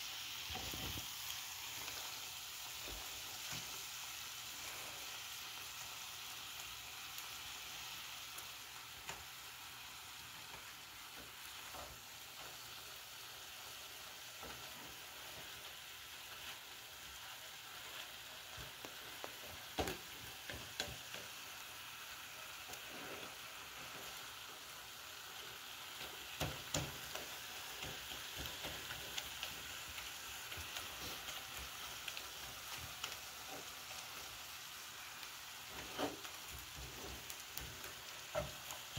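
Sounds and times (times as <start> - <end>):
beef sizzling in a skillet: 0.0 - 38.9
spatula scraping and tapping pan: 13.7 - 21.6, 25.9 - 34.3, 35.7 - 38.9.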